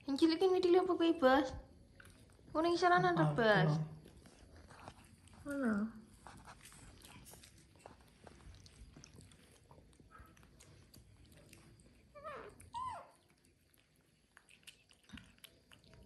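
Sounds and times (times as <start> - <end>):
monkeys chewing corn clicks: 3.9 - 16.0.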